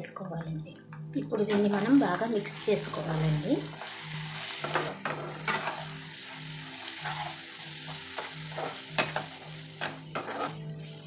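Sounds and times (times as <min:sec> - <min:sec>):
chicken sizzling in oil: 0:01.5 - 0:11.0
plastic spatula scraping pan: 0:10.2 - 0:10.6.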